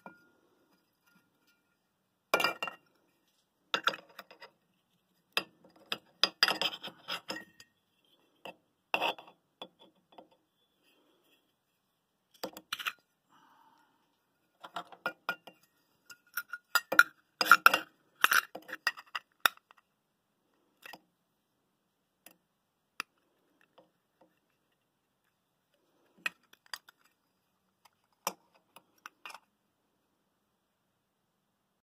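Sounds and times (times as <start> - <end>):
metal lids clinking together: 15.0 - 19.6.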